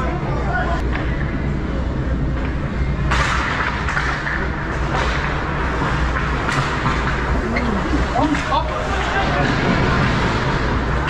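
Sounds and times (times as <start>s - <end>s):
low arena hum: 0.0s - 11.0s
hockey sticks and puck clacking: 3.1s - 7.2s
crowd murmur: 7.2s - 10.2s.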